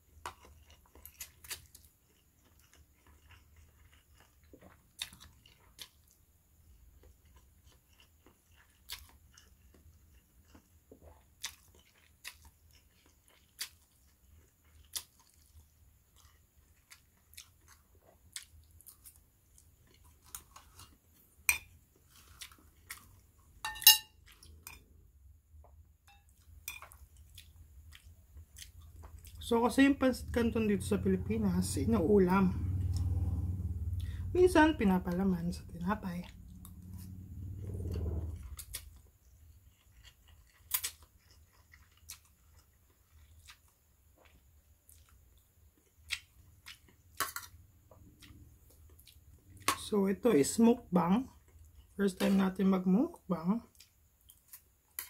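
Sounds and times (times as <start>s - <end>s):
quiet chewing with smacks: 0.0s - 21.3s, 21.9s - 23.4s, 25.7s - 29.4s, 38.4s - 49.8s, 51.3s - 52.0s, 53.6s - 55.0s
fork scraping ceramic plate: 23.7s - 24.1s
ringing clink: 23.7s - 24.1s.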